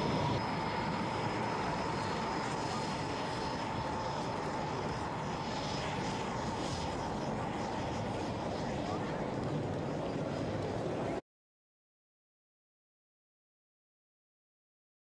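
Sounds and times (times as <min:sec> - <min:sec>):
high whine: 0:00.0 - 0:11.2
jet engine rushing: 0:00.0 - 0:11.2.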